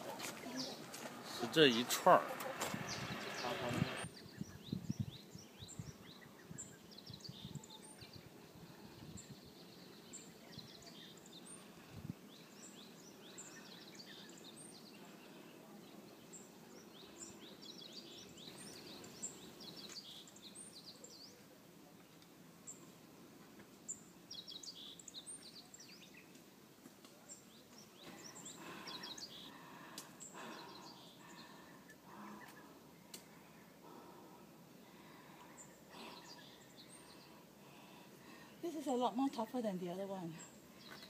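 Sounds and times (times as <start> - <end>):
small birds chirping: 0.0 - 41.0.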